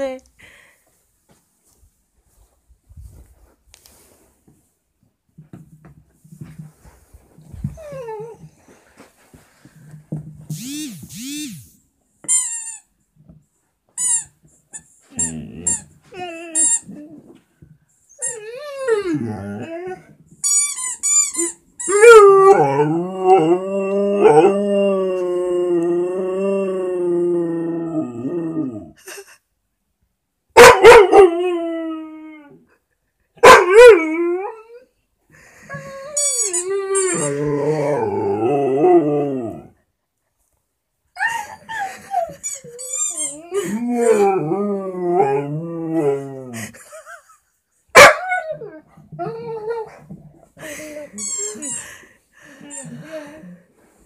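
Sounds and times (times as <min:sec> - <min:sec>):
squeaky toy: 0:12.3 - 0:12.9, 0:14.0 - 0:15.9, 0:16.6 - 0:16.9, 0:20.4 - 0:22.0, 0:36.0 - 0:37.3, 0:42.3 - 0:43.5, 0:51.2 - 0:51.8
dog howling: 0:22.0 - 0:28.9
dog squealing: 0:41.4 - 0:44.2.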